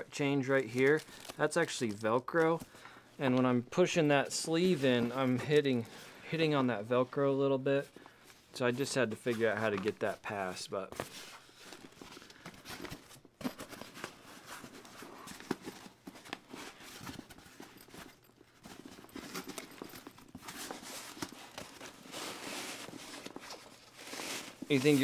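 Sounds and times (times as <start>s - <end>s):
fabric rustling and scraping: 14.1s - 25.0s.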